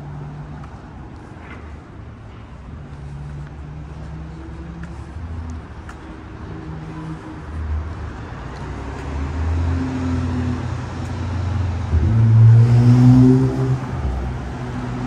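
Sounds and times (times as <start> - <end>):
cars driving by: 0.0 - 15.0.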